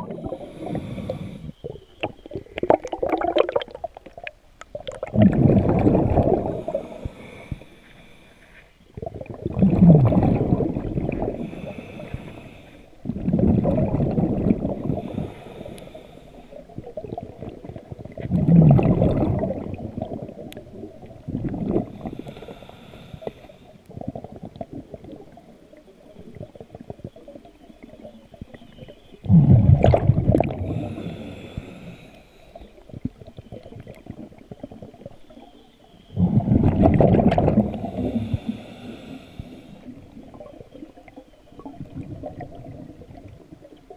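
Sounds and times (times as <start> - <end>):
underwater breath bubbling: 0.0 - 35.2, 36.0 - 43.9.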